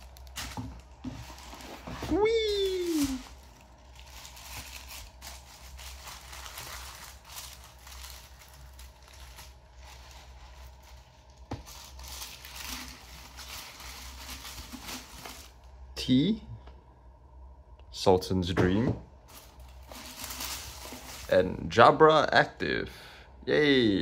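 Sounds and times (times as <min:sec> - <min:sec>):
paper crinkling and rustling: 0:00.0 - 0:15.7, 0:19.3 - 0:21.4.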